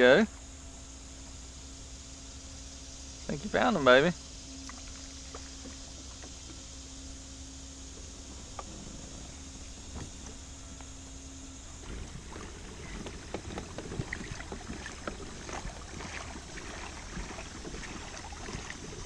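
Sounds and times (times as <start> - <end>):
water splashing against kayak hull: 4.6 - 7.0, 7.9 - 19.0.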